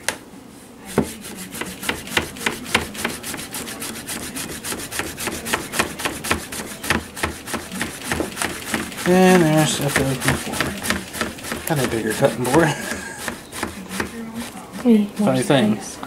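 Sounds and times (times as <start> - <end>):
knife chopping on plastic board: 0.9 - 15.5.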